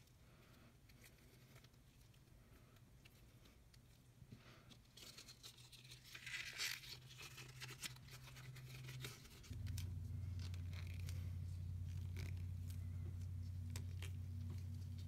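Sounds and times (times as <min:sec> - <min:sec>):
steady low hum: 0:07.2 - 0:15.0
leather crinkling and creaking: 0:07.5 - 0:15.0.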